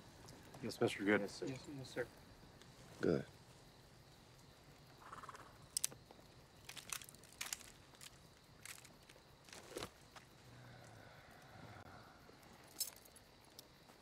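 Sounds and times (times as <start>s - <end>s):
faint clicks and rustles: 5.6s - 11.5s.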